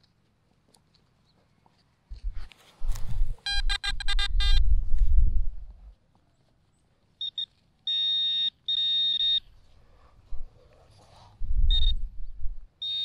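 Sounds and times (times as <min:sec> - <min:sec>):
metal detector beeping: 0:03.4 - 0:04.7, 0:07.2 - 0:09.5, 0:11.7 - 0:12.0, 0:12.8 - 0:13.0.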